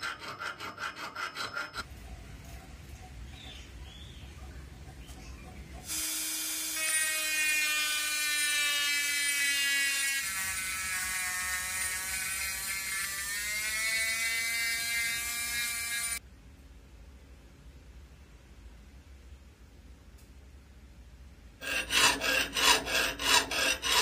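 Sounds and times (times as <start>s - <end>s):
sanding drum against steel: 21.6s - 24.0s.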